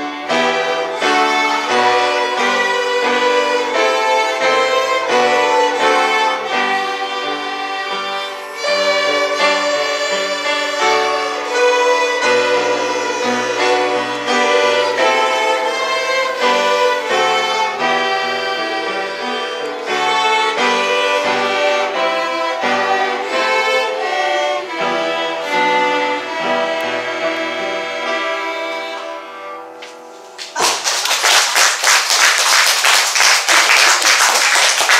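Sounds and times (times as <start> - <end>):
string ensemble playing: 0.0 - 34.9
audience applause: 30.4 - 34.9.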